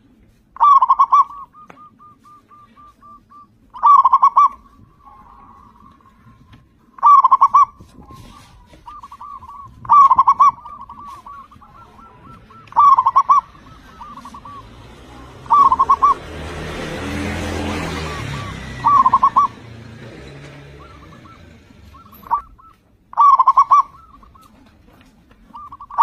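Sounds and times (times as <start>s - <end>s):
dove cooing: 0.6s - 26.0s
rushing noise with low hum: 7.6s - 12.8s.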